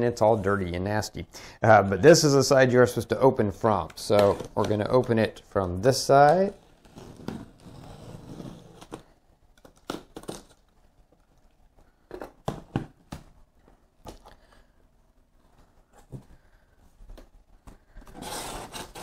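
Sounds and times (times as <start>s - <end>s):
box cutter slicing cardboard tape: 18.2s - 19.0s.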